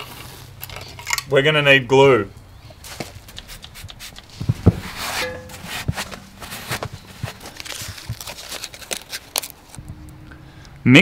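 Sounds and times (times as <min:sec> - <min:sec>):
heavy thumps: 0:04.3 - 0:08.2.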